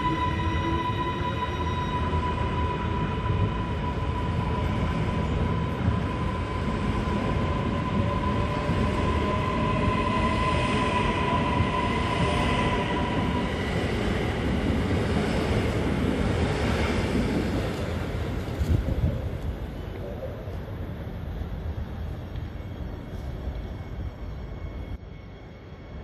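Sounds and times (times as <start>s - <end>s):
train wheels rumbling on rails: 0.0s - 25.1s.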